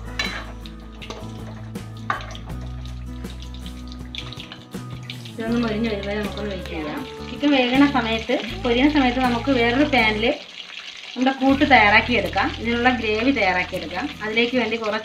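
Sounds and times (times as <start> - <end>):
bass line: 5.4 - 10.3.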